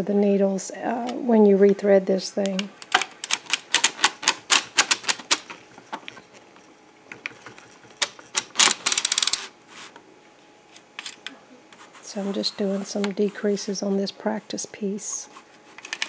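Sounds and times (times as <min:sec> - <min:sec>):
knitting machine needles clicking: 0:02.4 - 0:05.5, 0:07.2 - 0:09.4.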